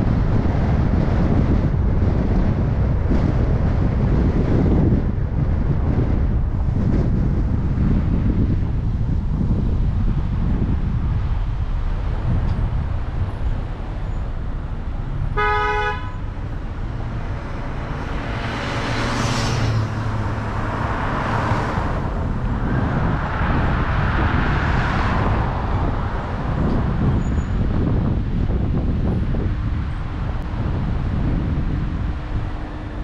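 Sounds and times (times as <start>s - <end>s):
car driving low rumble: 0.0s - 33.0s
car horn toot: 15.3s - 16.3s.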